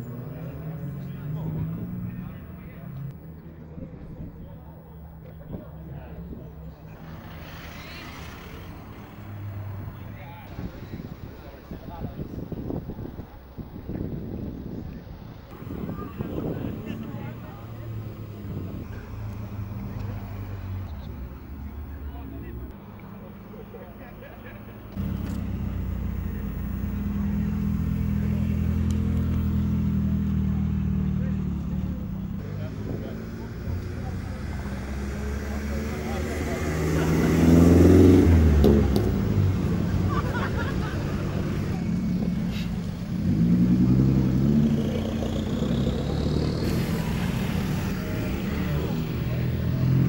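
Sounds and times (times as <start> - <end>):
car engine running at low revs: 0.0 - 50.0.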